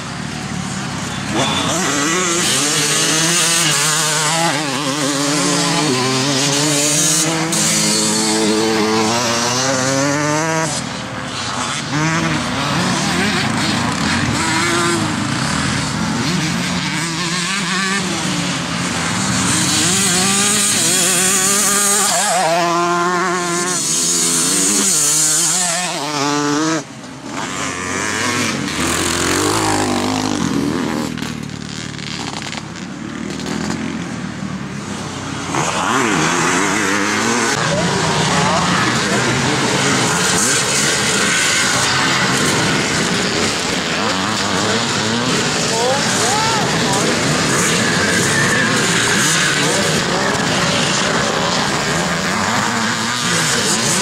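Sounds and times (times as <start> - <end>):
motocross bikes revving: 0.0 - 54.0.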